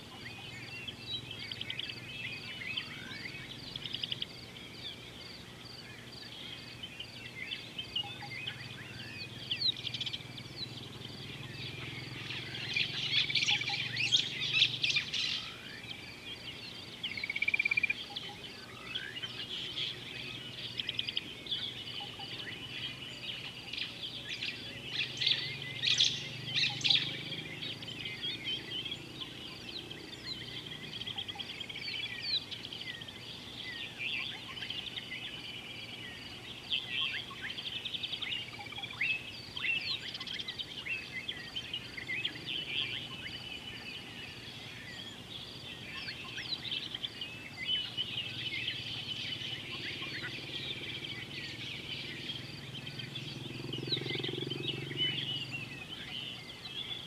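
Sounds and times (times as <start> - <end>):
birds chirping and calling: 0.0 - 57.0.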